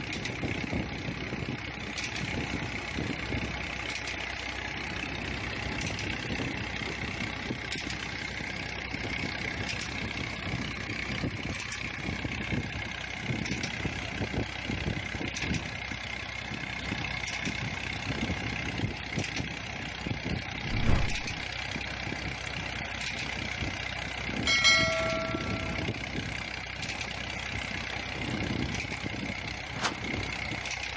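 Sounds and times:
diesel engine running under load: 0:00.0 - 0:30.9
brief ringing tone: 0:24.5 - 0:26.0.

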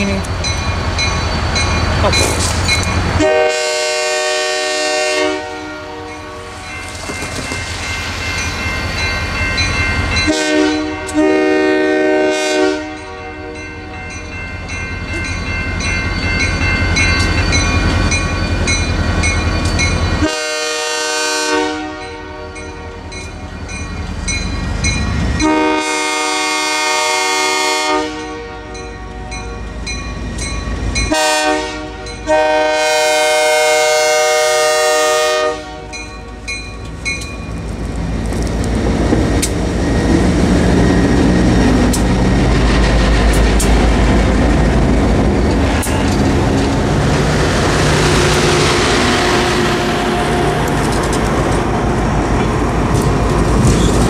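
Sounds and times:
crossing bell ringing: 0:00.0 - 0:03.3, 0:05.8 - 0:11.6, 0:12.8 - 0:20.8, 0:21.8 - 0:25.9, 0:28.1 - 0:32.8, 0:35.5 - 0:37.7
train air horn blasts: 0:03.2 - 0:06.6, 0:10.2 - 0:13.6, 0:20.2 - 0:22.6, 0:25.4 - 0:28.8, 0:31.1 - 0:36.0.

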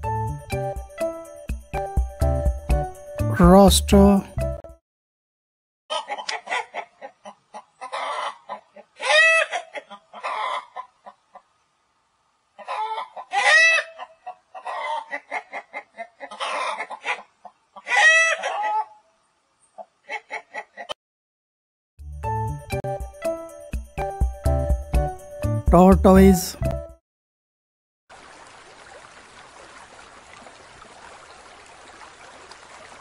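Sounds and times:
chickens clucking: 0:05.9 - 0:11.6, 0:12.6 - 0:19.0, 0:19.8 - 0:21.0
drawn-out chicken calls: 0:05.9 - 0:11.6, 0:12.5 - 0:21.0.

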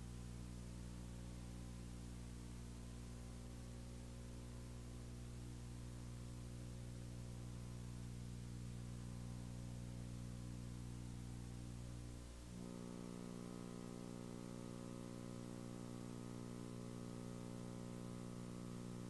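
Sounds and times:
electrical hum: 0:00.0 - 0:19.0.

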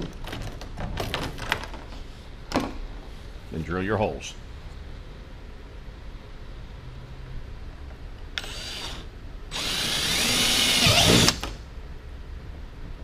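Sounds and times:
power drill boring holes: 0:08.4 - 0:11.5.

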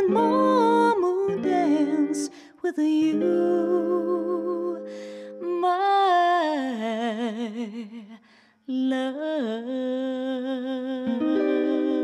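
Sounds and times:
jazz guitar chords: 0:00.0 - 0:06.8, 0:11.0 - 0:12.0.

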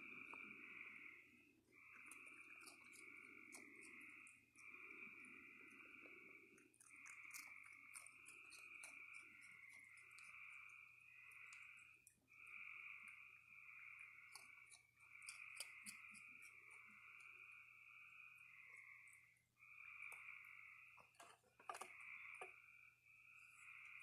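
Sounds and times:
frogs calling: 0:00.0 - 0:24.0
animal chewing crunchy food: 0:01.8 - 0:12.2.

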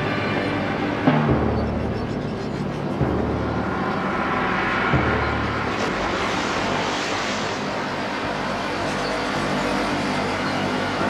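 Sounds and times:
loud rushing noise: 0:02.6 - 0:11.0.

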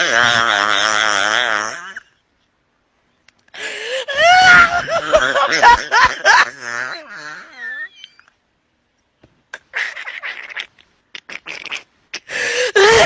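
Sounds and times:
cartoon character laughing: 0:09.6 - 0:10.7.

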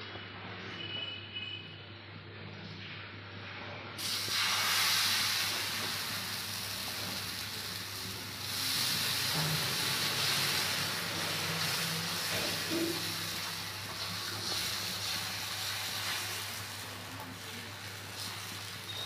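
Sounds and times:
batter sizzling on a griddle: 0:04.0 - 0:19.0.

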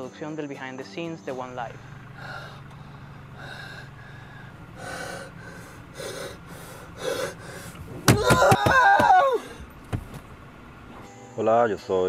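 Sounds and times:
man breathing hard: 0:02.0 - 0:08.1
man crying out: 0:08.0 - 0:09.7.

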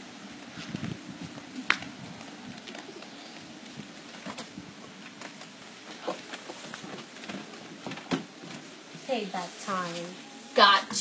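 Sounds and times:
steady hiss: 0:00.0 - 0:11.0
dove cooing: 0:01.4 - 0:05.0.

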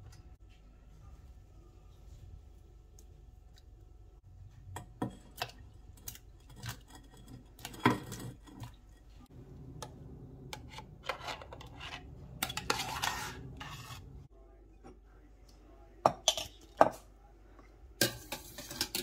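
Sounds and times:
pot scraping clatter: 0:10.5 - 0:14.3, 0:18.0 - 0:19.0.

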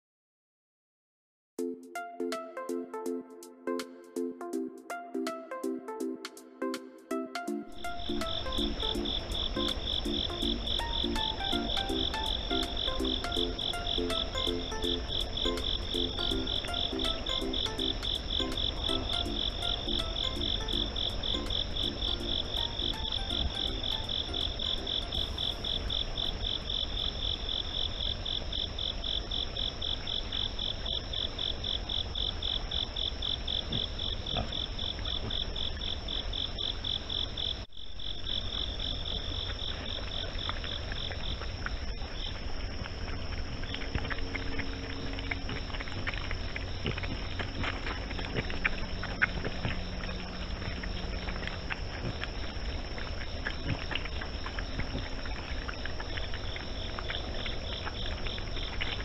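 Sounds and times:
continuous high tone: 0:01.6 - 0:26.7
crickets and insects trilling: 0:05.6 - 0:59.0
low hum: 0:41.8 - 0:53.5.

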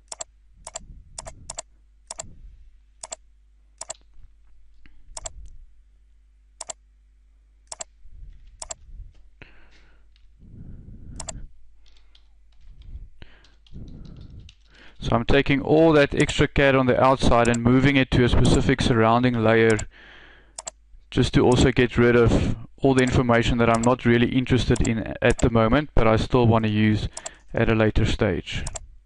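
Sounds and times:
computer mouse clicks: 0:00.0 - 0:02.3, 0:03.8 - 0:04.0, 0:05.2 - 0:05.4, 0:06.6 - 0:06.8, 0:07.7 - 0:07.9, 0:11.2 - 0:14.8, 0:17.4 - 0:17.6, 0:20.6 - 0:20.8, 0:23.7 - 0:24.0, 0:24.8 - 0:25.5, 0:27.2 - 0:27.4, 0:28.6 - 0:28.8
faint low hum: 0:00.0 - 0:29.0.

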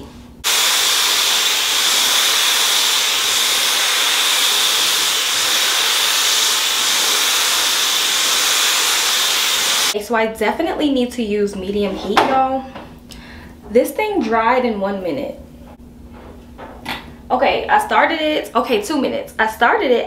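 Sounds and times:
hair dryer blowing with whine: 0:00.0 - 0:10.0.

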